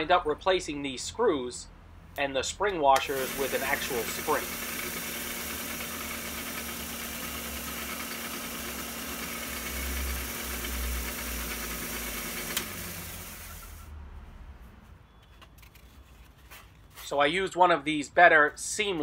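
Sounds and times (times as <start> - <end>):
belt sander running: 3.0 - 13.8.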